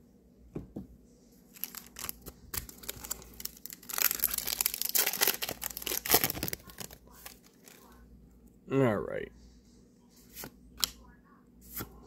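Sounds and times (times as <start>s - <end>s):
foil wrapper crinkling and tearing: 1.5s - 7.9s.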